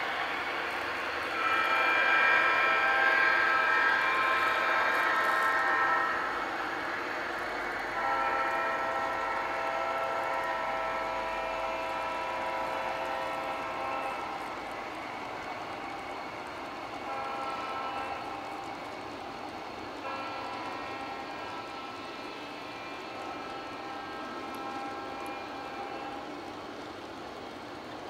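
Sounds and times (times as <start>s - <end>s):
model train rolling on track: 0.0s - 28.0s
model locomotive horn blasts: 1.3s - 6.4s, 7.9s - 14.8s, 16.8s - 18.8s, 20.0s - 26.4s.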